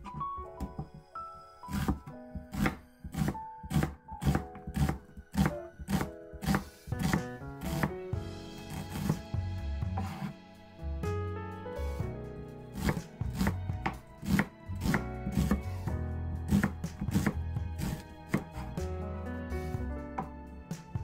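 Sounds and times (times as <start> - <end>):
background music: 0.0 - 21.0
knife slicing onion on board: 1.7 - 7.9, 8.7 - 9.2, 10.0 - 10.3, 12.8 - 15.7, 16.5 - 18.8.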